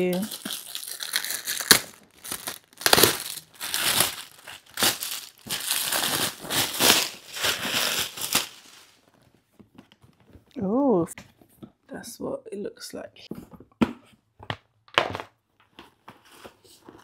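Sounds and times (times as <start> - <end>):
crinkly packaging rustling: 0.0 - 10.3.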